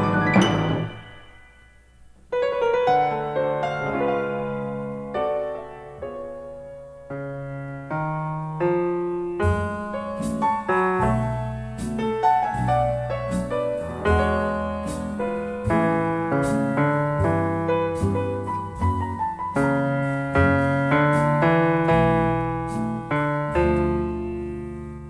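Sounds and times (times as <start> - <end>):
sharp percussion hits: 0.0 - 2.1
easy-listening piano music: 0.0 - 25.0
low bass notes: 7.4 - 25.0.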